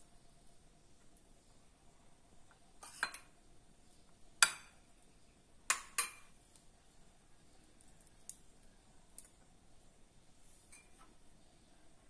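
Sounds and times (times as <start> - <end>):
metal utensil clinking on plates: 2.8 - 3.4, 5.7 - 6.3.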